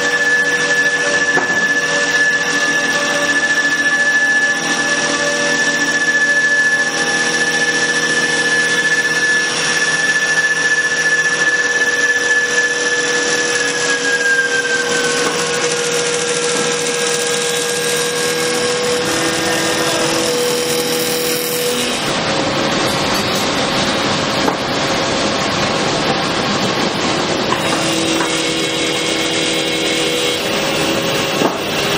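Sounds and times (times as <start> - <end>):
rough wood cutting noise: 0.0 - 24.8, 27.4 - 31.9
wood lathe whine: 0.0 - 31.9.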